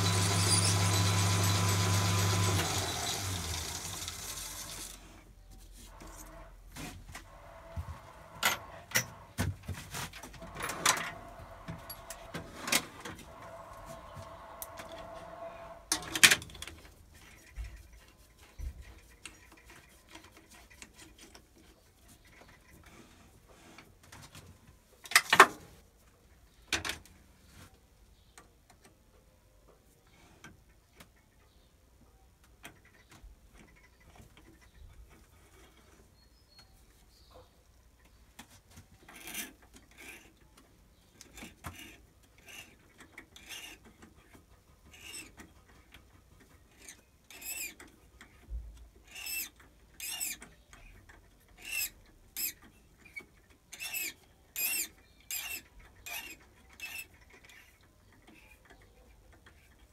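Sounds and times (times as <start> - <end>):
thread tap scraping squeaks: 0.0 - 3.1, 10.4 - 22.9, 39.0 - 59.9.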